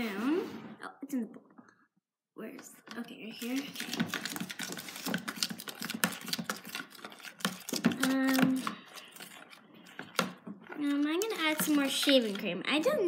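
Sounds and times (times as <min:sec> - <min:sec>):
spoon stirring slime in plastic tub: 0:02.9 - 0:12.9.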